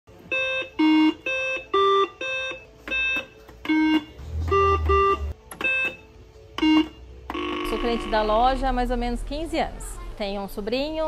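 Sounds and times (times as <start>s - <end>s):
electronic game beeps: 0.3s - 8.5s.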